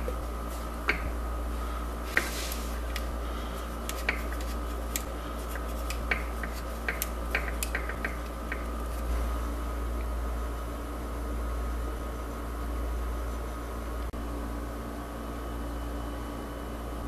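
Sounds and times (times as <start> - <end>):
steady low hum: 0.0 - 17.0
skewers clicking in wooden frame: 5.8 - 8.7.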